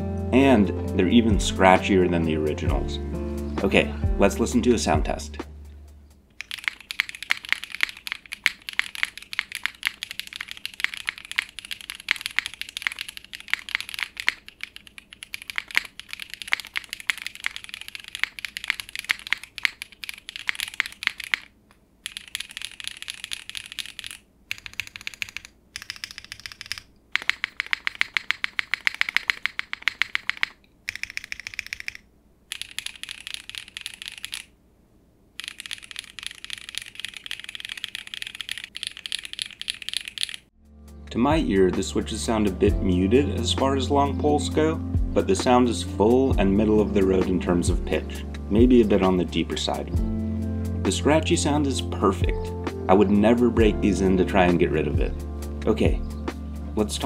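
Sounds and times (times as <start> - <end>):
mechanical keyboard typing: 6.4 - 34.5, 35.4 - 40.5.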